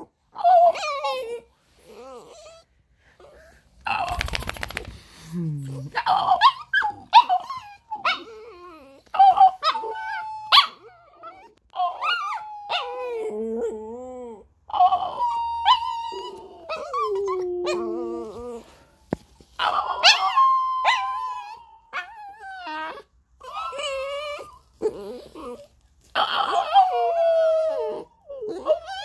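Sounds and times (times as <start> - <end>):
dog howling and yelping: 0.0 - 4.8, 6.0 - 29.0.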